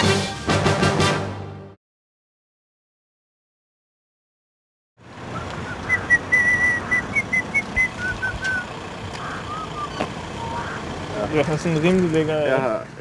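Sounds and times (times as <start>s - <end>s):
outdoor background noise: 5.0s - 13.0s
person whistling a tune: 6.0s - 8.6s.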